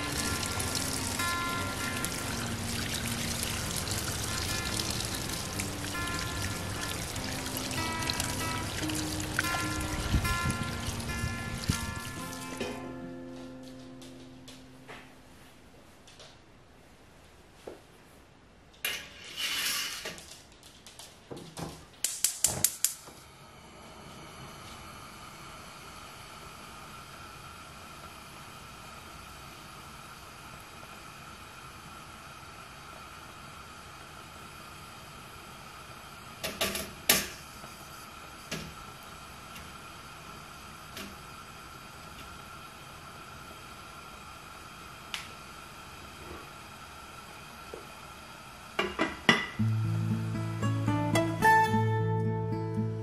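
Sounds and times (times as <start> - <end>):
gas burner hissing: 0.0 - 13.0, 22.0 - 50.3
spark igniter clicks: 22.0 - 23.1.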